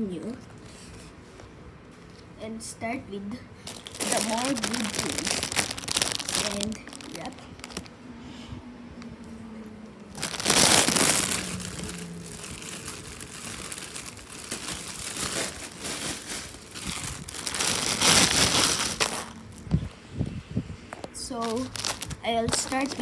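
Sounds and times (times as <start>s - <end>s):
packaging crinkling and rustling: 3.6s - 8.0s, 10.1s - 19.8s, 21.3s - 23.0s.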